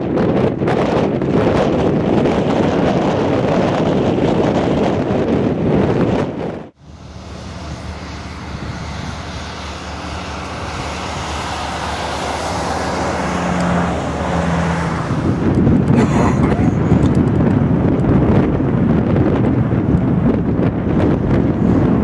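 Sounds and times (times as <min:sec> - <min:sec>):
jet engines rushing: 0:00.1 - 0:22.0
low hum: 0:06.5 - 0:22.0.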